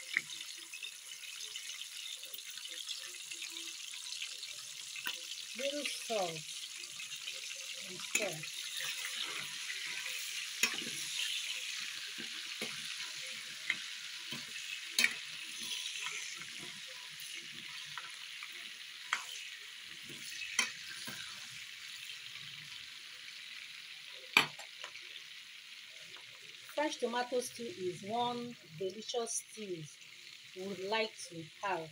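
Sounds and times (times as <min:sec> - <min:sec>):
onions sizzling in oil: 0:00.0 - 0:31.9
metal spoon clinking on pot: 0:10.6 - 0:11.2.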